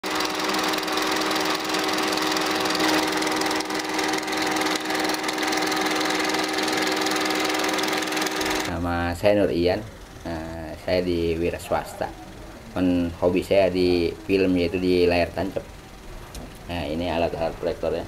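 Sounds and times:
film projector clatter: 0.0s - 8.7s.

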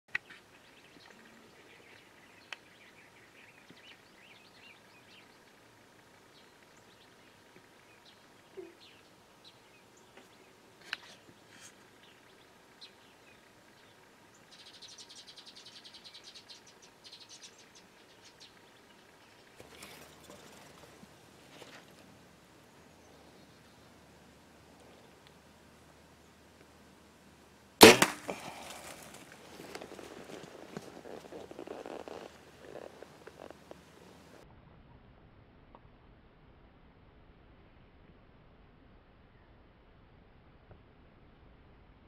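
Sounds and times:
bird chirps: 12.0s - 20.8s.

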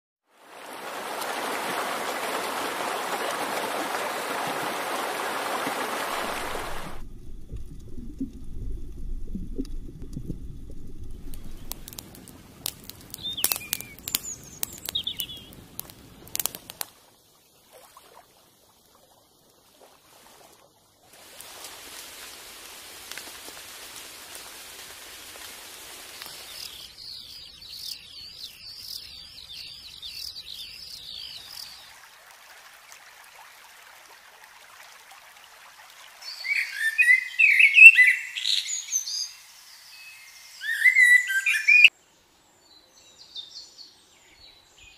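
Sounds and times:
steady rushing noise: 6.0s - 12.6s
campfire crackling and popping: 6.1s - 17.0s, 21.1s - 26.9s
high trilling birdsong: 12.8s - 15.6s, 26.4s - 31.8s, 36.3s - 41.9s
bird chirps: 13.1s - 15.6s, 36.3s - 41.9s.

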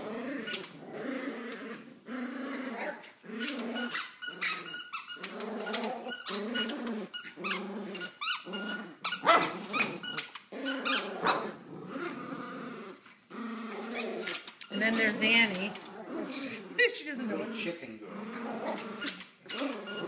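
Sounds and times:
puppies growling: 0.0s - 20.0s.

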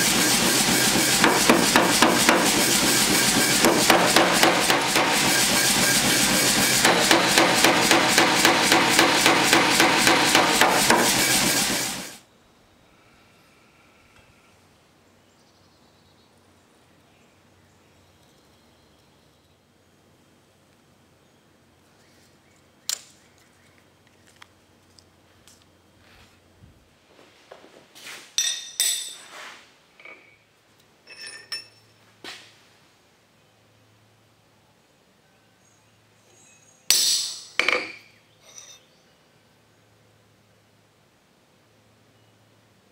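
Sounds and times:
power hammer pounding steel: 0.0s - 12.2s
steel tools clinking on anvil: 28.4s - 29.3s, 31.1s - 31.9s, 36.9s - 38.8s.

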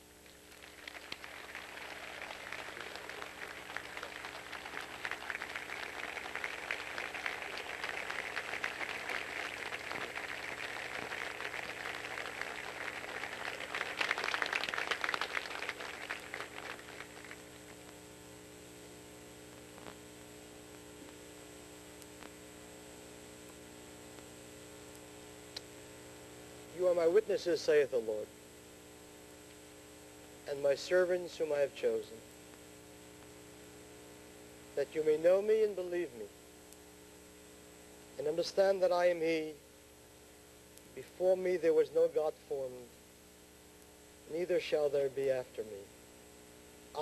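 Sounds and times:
low mains hum: 0.0s - 47.0s
audience applauding: 0.5s - 17.5s.

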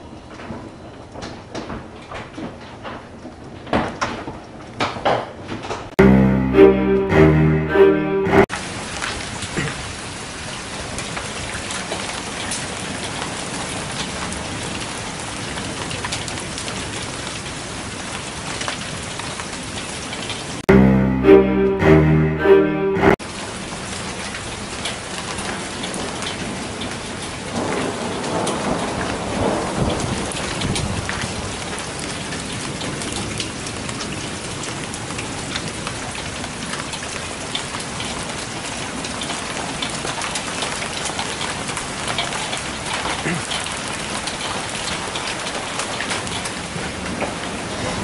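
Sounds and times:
heavy rain downpour: 8.6s - 20.6s, 23.2s - 48.0s.

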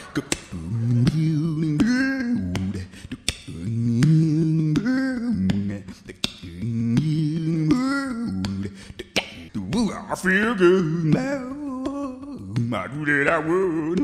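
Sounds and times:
vocal music with percussive clicks: 0.0s - 14.0s.

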